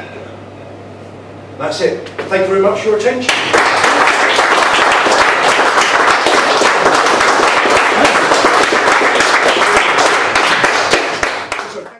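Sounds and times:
audience applauding: 3.3s - 11.9s.

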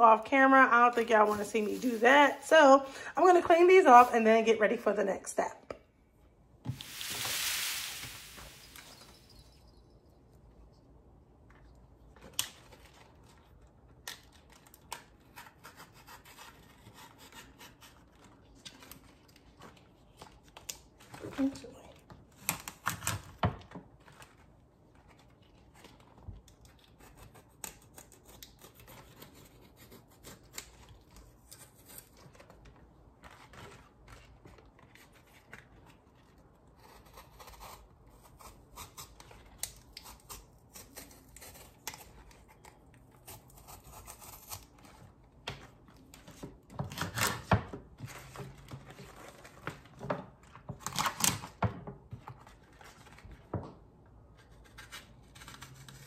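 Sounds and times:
leaves rustling: 6.7s - 9.4s.

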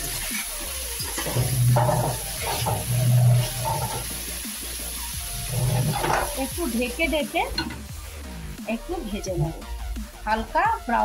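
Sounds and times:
vegetables frying in oil: 0.0s - 9.9s
metal spatula scraping pan: 0.1s - 4.3s, 5.2s - 6.6s.

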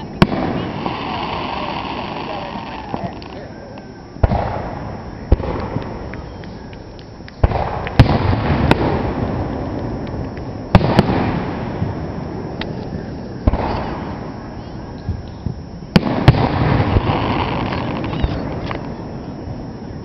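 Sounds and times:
fireworks booms and cracks: 0.0s - 3.4s, 4.2s - 6.2s, 7.4s - 14.5s, 15.1s - 19.7s
rumbling echo: 4.2s - 6.6s, 7.4s - 14.7s.

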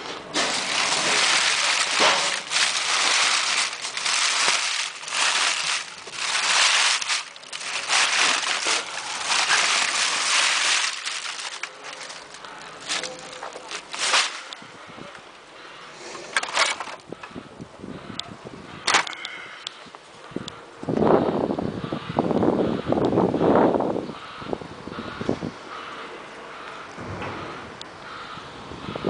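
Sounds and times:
plastic bag rustling: 0.1s - 14.8s.

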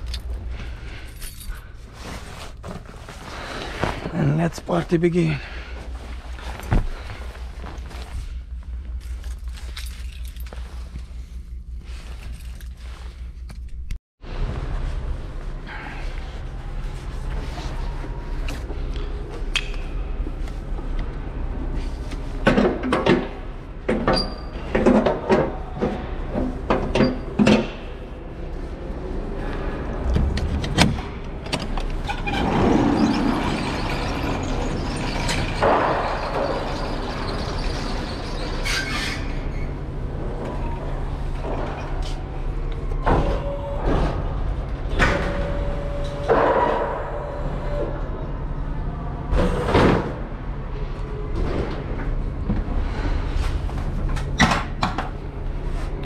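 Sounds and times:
steady low hum: 0.0s - 56.0s
loading door rattling up tracks: 29.8s - 48.0s.

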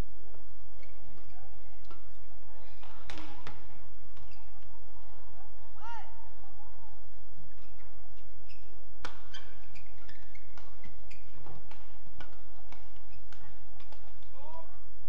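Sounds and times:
shoes squeaking on court: 0.7s - 4.9s, 7.4s - 14.3s
shuttlecock hit with rackets: 2.8s - 4.4s, 9.0s - 9.6s, 10.5s - 14.4s.

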